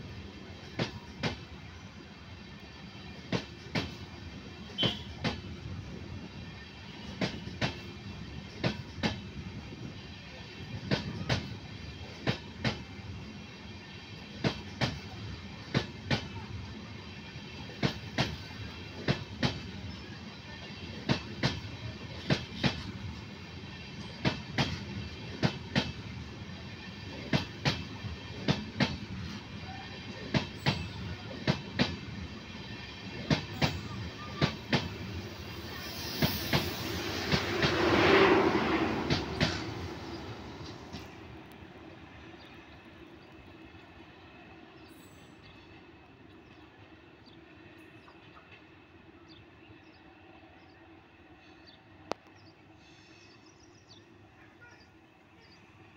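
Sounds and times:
steady train rumble: 0.0s - 55.9s
train wheels clicking over rail joints: 20.8s - 26.1s, 26.8s - 29.4s, 38.9s - 41.2s.

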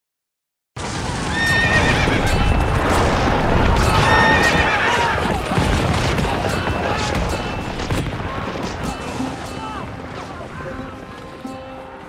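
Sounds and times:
hooves clattering: 0.8s - 12.0s
horses whinnying: 1.2s - 2.6s, 3.7s - 8.5s.

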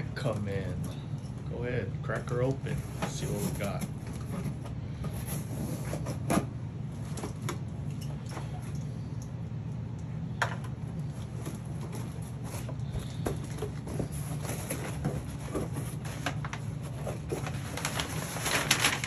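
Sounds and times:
cardboard and tape rustling: 2.1s - 8.7s, 10.6s - 19.0s.

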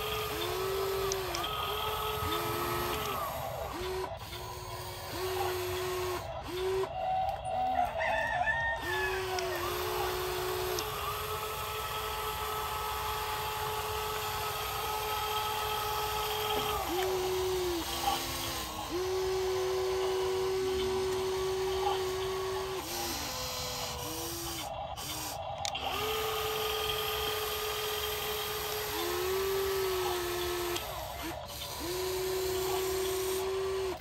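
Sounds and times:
toy electric motors whining: 0.0s - 34.0s
rooster crowing: 7.0s - 10.2s.

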